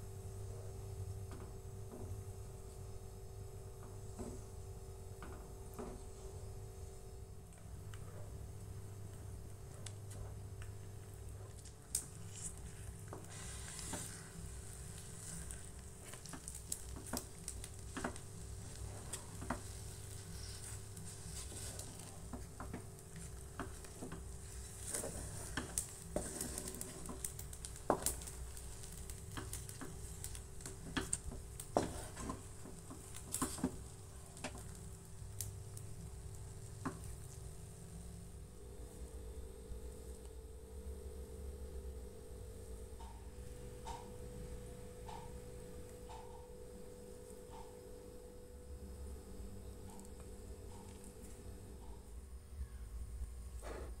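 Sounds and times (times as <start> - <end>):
steady low hum: 0.0 - 54.0
spatula scraping a metal pan: 24.7 - 27.2.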